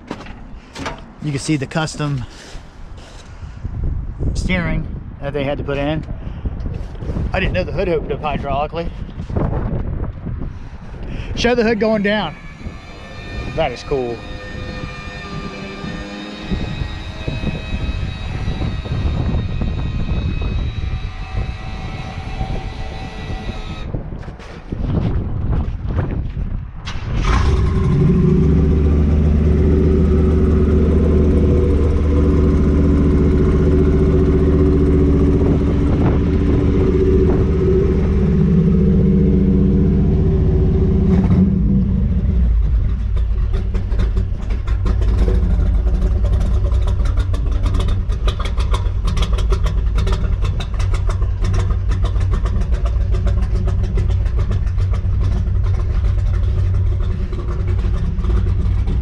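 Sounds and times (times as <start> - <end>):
vee-eight engine running: 11.0 - 23.9, 27.4 - 59.0.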